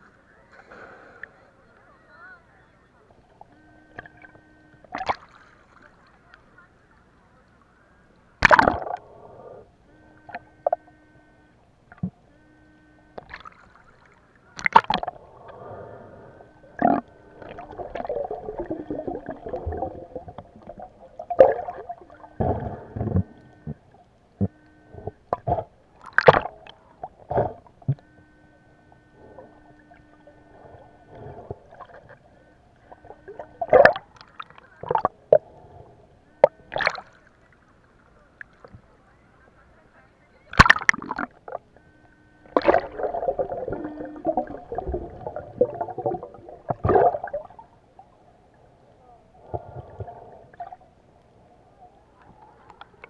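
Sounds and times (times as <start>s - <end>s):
faint steady hum: 0.0s - 53.0s
gurgling water: 3.1s - 6.7s, 8.4s - 39.0s, 40.4s - 53.0s.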